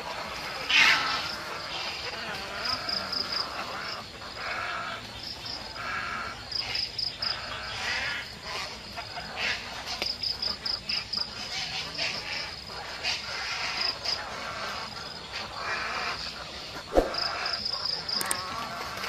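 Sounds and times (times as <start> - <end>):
insect chirring in high pulses: 16.9 - 18.5.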